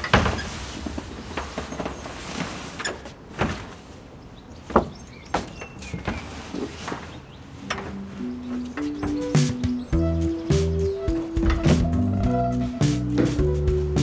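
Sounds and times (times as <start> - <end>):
metal knocks and clunks: 0.0 - 2.0, 7.6 - 14.0
music with held notes: 7.7 - 14.0.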